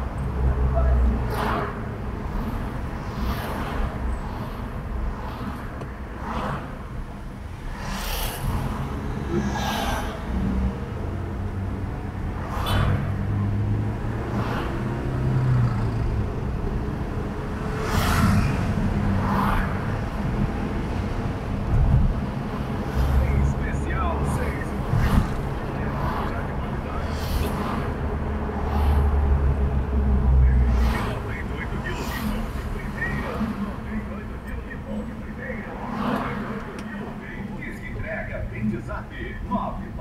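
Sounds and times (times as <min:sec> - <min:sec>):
car engine and road rumble: 0:00.0 - 0:40.0
passing traffic rushes: 0:00.0 - 0:40.0.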